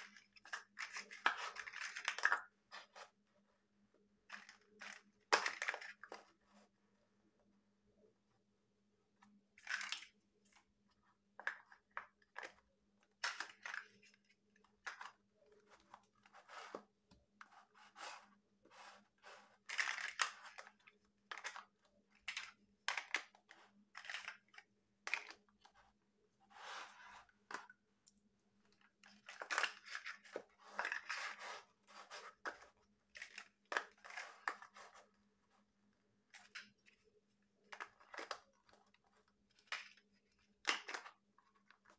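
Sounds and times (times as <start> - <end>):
plastic blocks clicking and clattering: 0.0 - 3.1, 4.2 - 6.3, 9.3 - 10.6, 11.3 - 16.8, 19.0 - 25.9, 28.6 - 35.0, 36.2 - 41.9.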